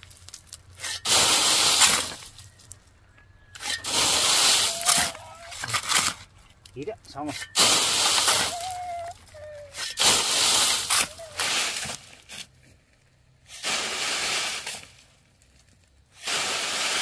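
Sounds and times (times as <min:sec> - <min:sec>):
sand pouring through mesh screen: 0:00.0 - 0:02.7, 0:03.6 - 0:06.1, 0:07.2 - 0:12.5, 0:13.4 - 0:15.1, 0:16.1 - 0:17.0.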